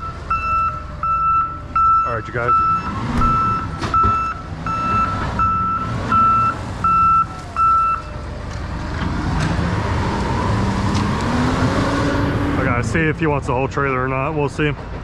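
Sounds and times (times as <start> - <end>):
reversing alarm beeping: 0.0 - 8.2.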